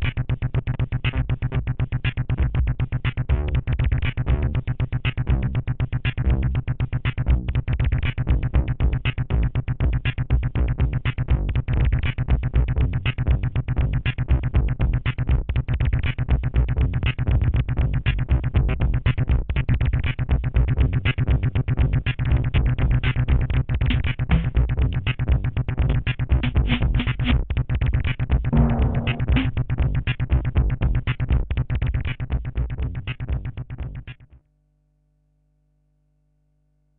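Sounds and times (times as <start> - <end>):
deep bass: 0.0 - 34.3
fast synth pulse: 28.5 - 30.2.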